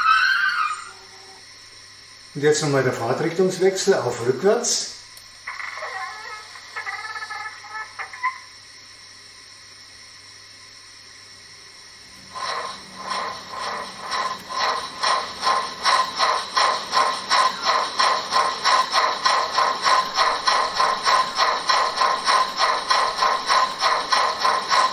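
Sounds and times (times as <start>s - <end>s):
steam exhaust chuffs from loudspeaker: 12.2s - 24.9s.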